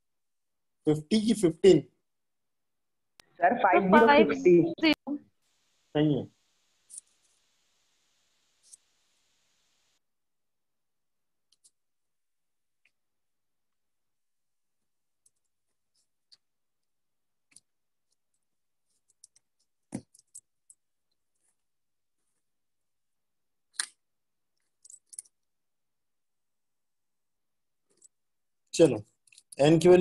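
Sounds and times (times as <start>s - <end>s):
small clicks and taps: 19.0s - 21.2s.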